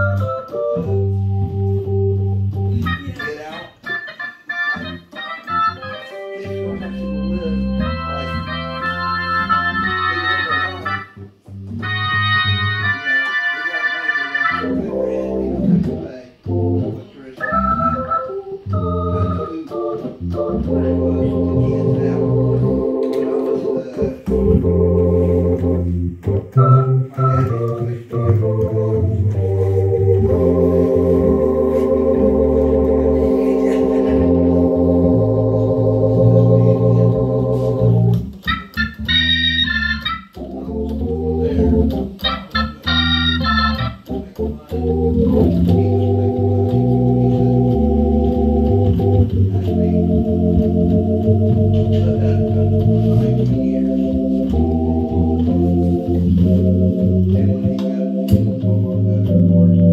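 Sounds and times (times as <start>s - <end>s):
bass amp low end: 0.0s - 3.1s, 20.1s - 23.0s, 23.8s - 59.9s
blues organ chords: 0.0s - 59.9s
quick high organ trills: 37.2s - 44.2s.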